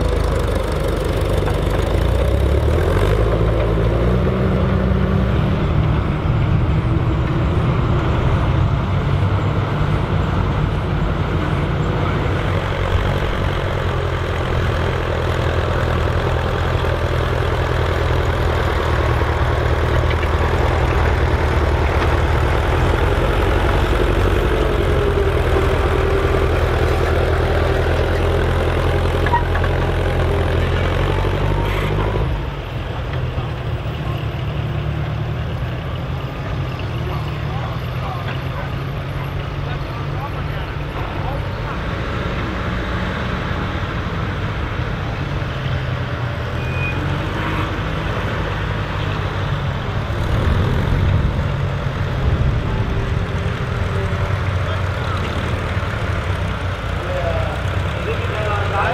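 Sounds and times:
tractor engines running under load: 0.0 - 58.9.

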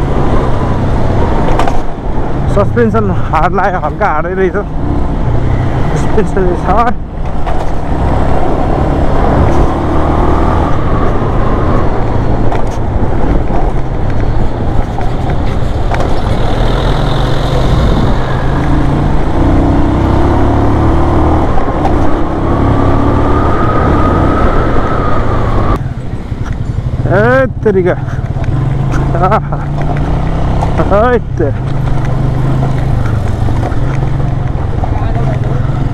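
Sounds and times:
road and wind noise: 0.0 - 35.9
motorcycle engine running: 25.8 - 35.9.

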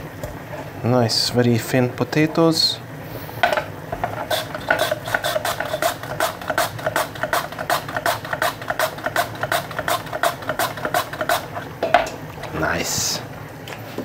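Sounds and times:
potato sliced on mandoline: 4.0 - 11.7.

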